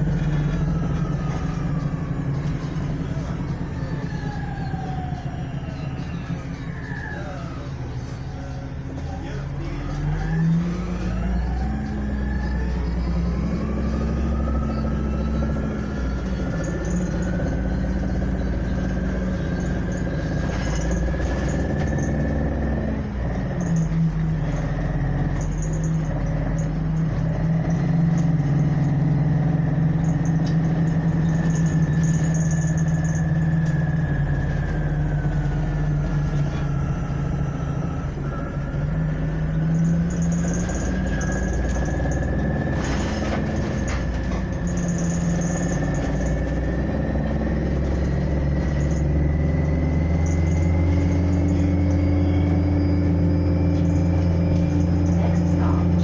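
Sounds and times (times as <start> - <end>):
bus engine hum and whine: 0.0 - 56.0.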